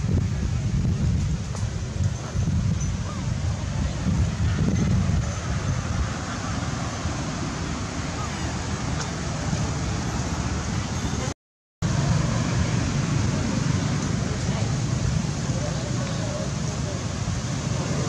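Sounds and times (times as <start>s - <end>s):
wind buffeting microphone: 0.0s - 11.3s.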